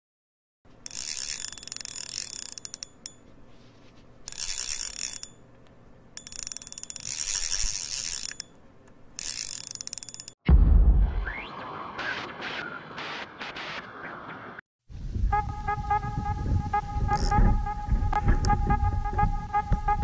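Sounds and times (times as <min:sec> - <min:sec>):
fishing reel ratchet clicking: 0:00.8 - 0:03.3, 0:04.3 - 0:10.4.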